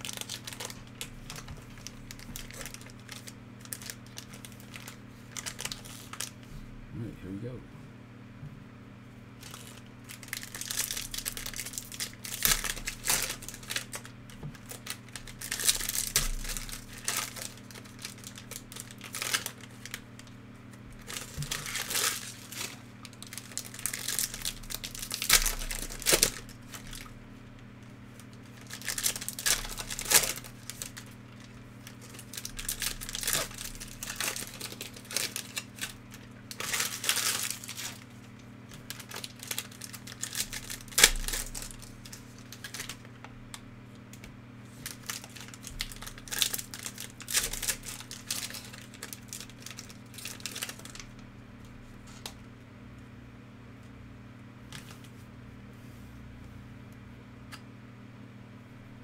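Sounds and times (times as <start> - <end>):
card pack wrappers crinkling and tearing: 0.0 - 6.4, 9.4 - 27.1, 28.1 - 43.7, 44.7 - 51.2
steady low hum: 0.0 - 59.0.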